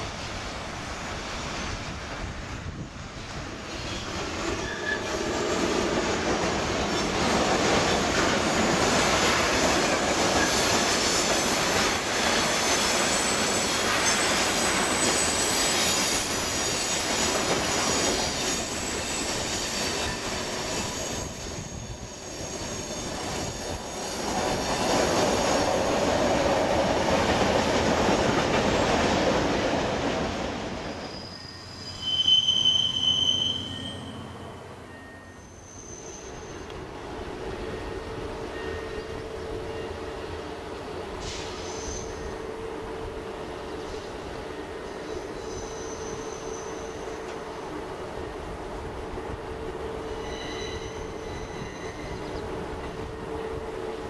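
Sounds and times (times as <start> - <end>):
freight train wheels on rails: 0.0 - 54.0
railcar passing with squealing: 0.0 - 54.0
high wheel squeal: 3.7 - 5.6, 10.3 - 26.0, 30.8 - 36.8, 41.2 - 42.4, 43.8 - 47.3, 50.0 - 52.4.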